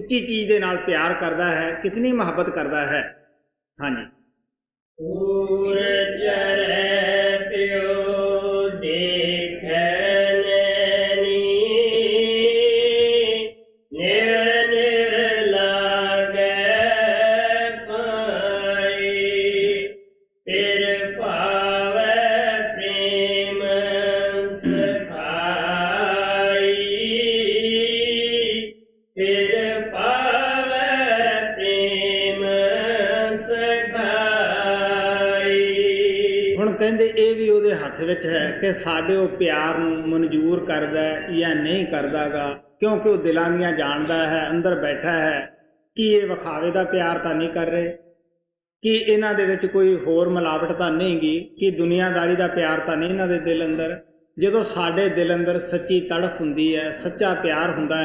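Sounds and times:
person chanting a hymn: 0:05.0 - 0:19.9, 0:20.5 - 0:28.6, 0:29.2 - 0:36.6.

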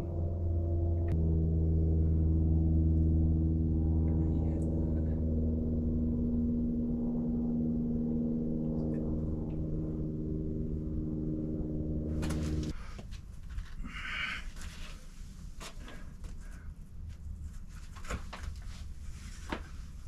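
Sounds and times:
low drone of held tones: 0:00.0 - 0:12.8.

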